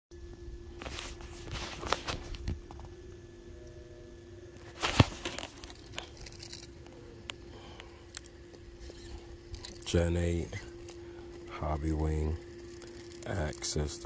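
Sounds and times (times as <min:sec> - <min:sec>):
faint steady hum: 0:00.1 - 0:14.0
footsteps crunching on rock: 0:04.6 - 0:06.7.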